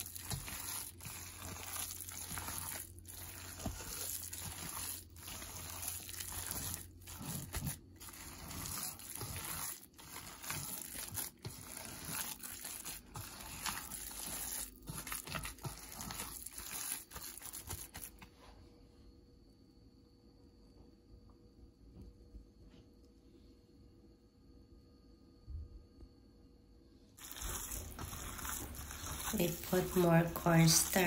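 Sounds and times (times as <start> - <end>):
wet squishing of kneaded meat: 0.0 - 18.3, 27.2 - 31.0.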